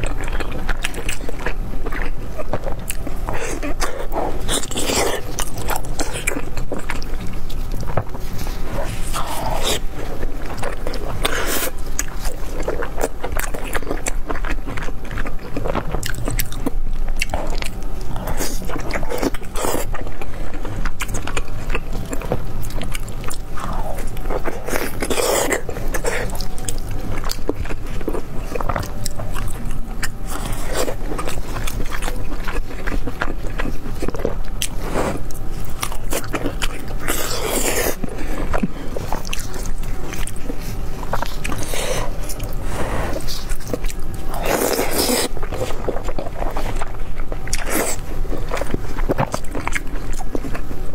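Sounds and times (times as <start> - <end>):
close-miked eating and chewing: 0.0 - 50.9.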